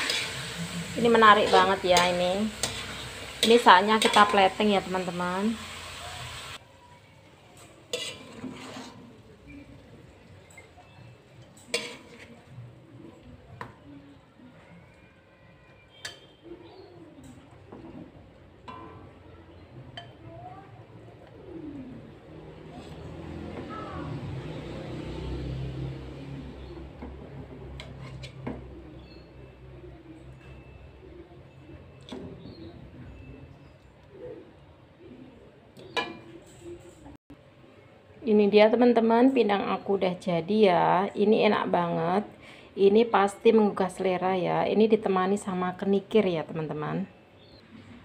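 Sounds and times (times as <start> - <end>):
spatula scraping a wok: 0.0 - 6.6, 7.6 - 9.5, 11.4 - 12.6, 22.6 - 26.0, 27.3 - 29.4.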